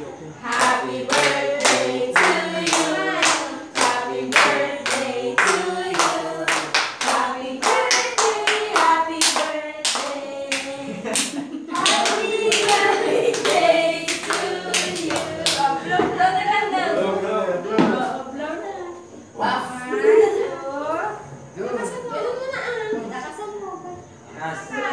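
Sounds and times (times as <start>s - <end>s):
group singing: 0.0s - 18.2s
people clapping in time: 0.5s - 15.7s.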